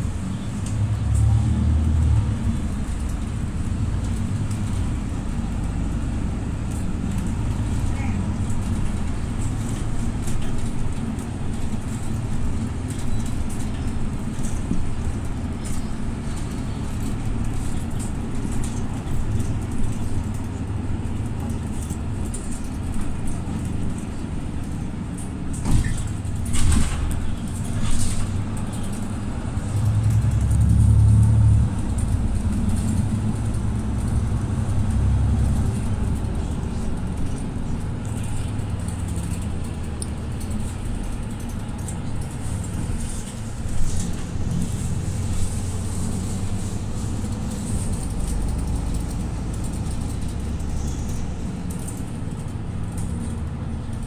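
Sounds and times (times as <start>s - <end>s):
bus engine drone: 0.0s - 54.0s
road noise: 0.0s - 54.0s.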